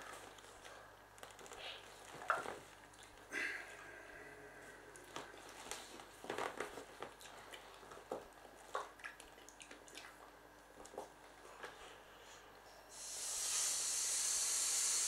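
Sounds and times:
person blowing up inflatable: 13.0s - 15.0s.

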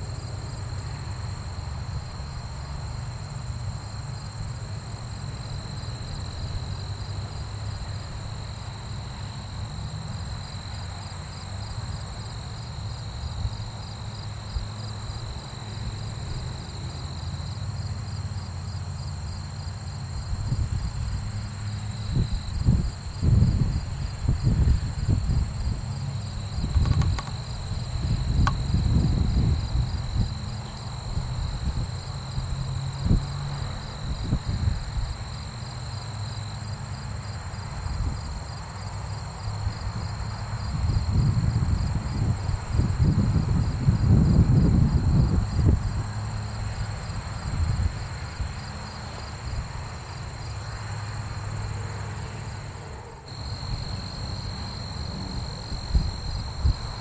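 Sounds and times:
insects trilling: 0.0s - 57.0s
wind rumble on microphone: 20.0s - 36.0s, 37.5s - 38.6s, 39.2s - 50.5s, 53.4s - 57.0s.

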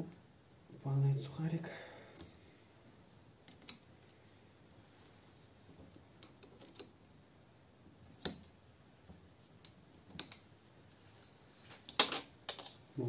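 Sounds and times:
small metallic clicks and clinks: 3.4s - 4.8s, 5.9s - 7.0s, 8.1s - 8.8s, 9.6s - 12.8s.

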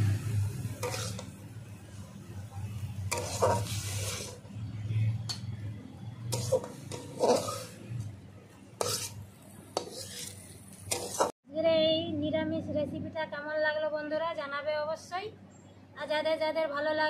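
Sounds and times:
metal spatula scraping steel: 0.6s - 1.4s, 2.9s - 4.6s, 6.2s - 8.1s, 8.8s - 11.4s.

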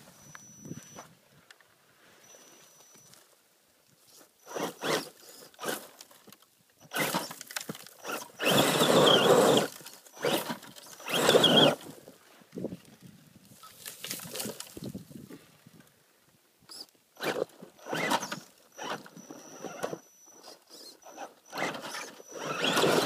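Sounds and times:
tyres scrabbling on loose dirt: 4.1s - 15.3s, 16.7s - 23.0s
electric motor whining: 8.0s - 11.8s, 17.2s - 23.0s.

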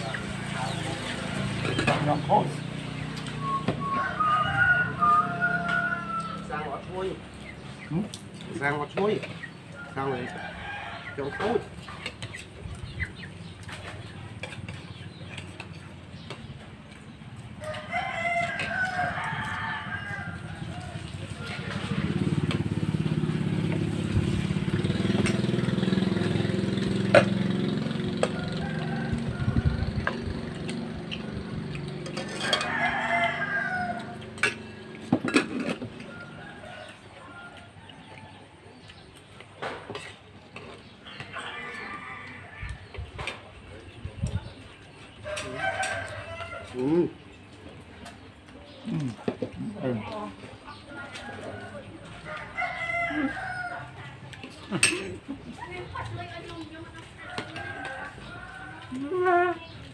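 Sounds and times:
rooster crowing: 3.4s - 6.7s, 17.6s - 22.2s, 28.2s - 30.2s, 32.2s - 34.8s, 41.3s - 42.9s, 45.2s - 47.0s, 51.0s - 54.1s, 57.1s - 59.2s
spoons clinking on plates: 32.0s - 32.9s.

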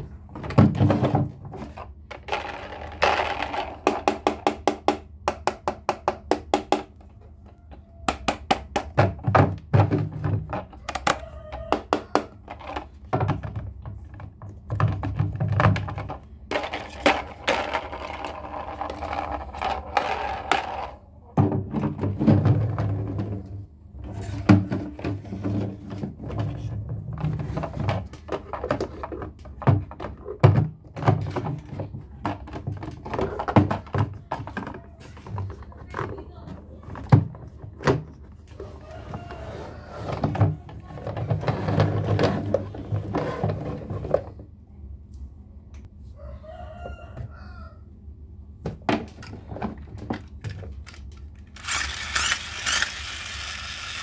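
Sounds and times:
plastic toys clicking and knocking: 0.0s - 23.0s, 24.2s - 38.4s, 48.9s - 54.0s.

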